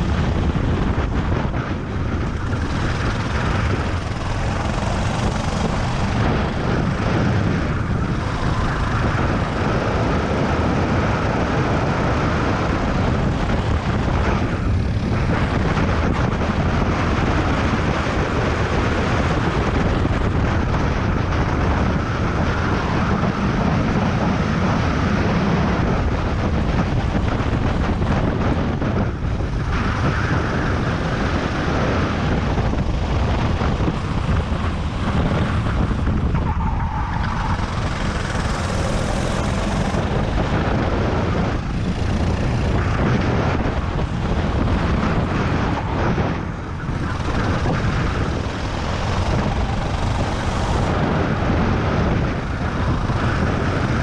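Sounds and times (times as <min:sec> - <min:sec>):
go-kart engine running hard: 0:00.0 - 0:54.0
wind on microphone: 0:00.0 - 0:54.0.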